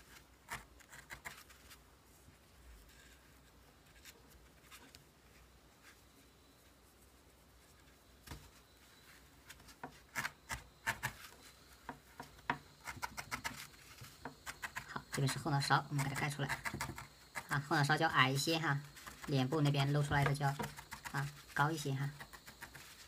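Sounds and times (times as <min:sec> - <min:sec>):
felting needle jabbing wool: 0:09.4 - 0:23.0.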